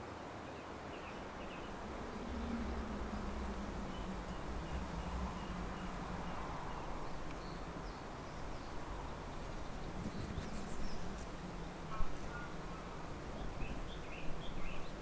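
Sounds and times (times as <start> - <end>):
low continuous hum: 0.1 - 15.0
faint clicks: 7.2 - 7.5.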